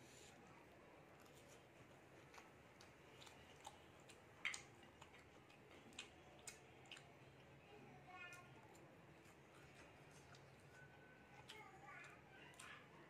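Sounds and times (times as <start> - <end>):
eating with hands clicks and smacks: 0.0 - 13.0.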